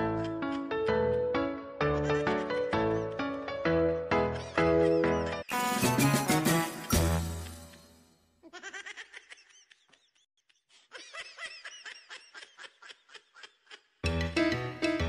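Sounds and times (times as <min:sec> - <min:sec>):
background music: 0:00.0 - 0:08.2, 0:14.0 - 0:15.0
person laughing: 0:08.4 - 0:14.0.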